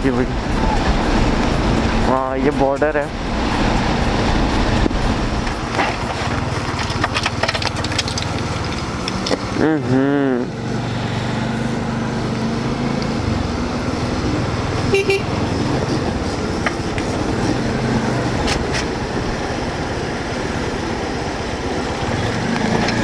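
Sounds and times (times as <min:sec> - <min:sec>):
motorcycle engine running: 0:00.0 - 0:23.0
traffic noise: 0:00.0 - 0:23.0
horn toot: 0:14.9 - 0:15.4.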